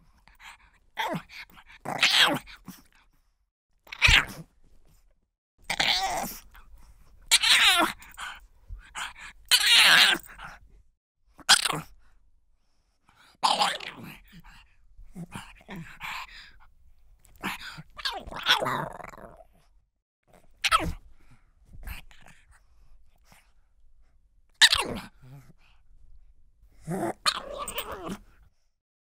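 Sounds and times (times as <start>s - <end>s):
dog barking and yelping: 7.3s - 8.4s, 9.0s - 10.5s, 27.1s - 28.2s.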